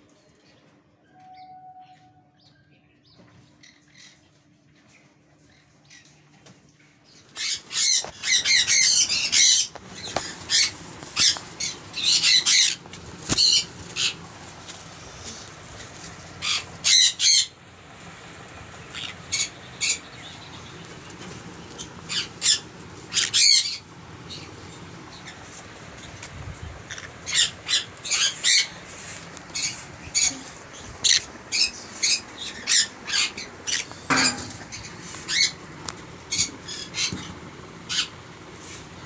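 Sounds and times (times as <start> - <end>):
parrots squawking: 7.4 - 14.3, 15.4 - 17.6, 18.8 - 20.4, 21.4 - 24.5, 26.8 - 38.2.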